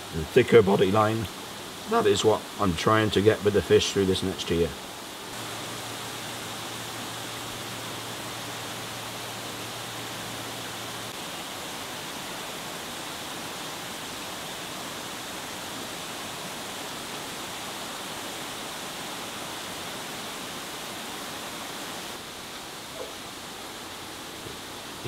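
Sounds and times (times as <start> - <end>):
water rushing in pond: 0.0 - 25.0.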